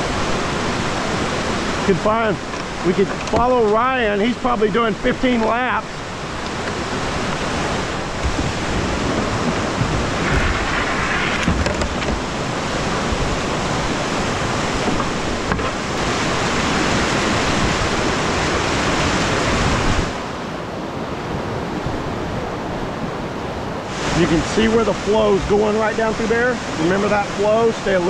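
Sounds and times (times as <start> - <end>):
whitewater rushing over cascades: 0.0 - 28.0.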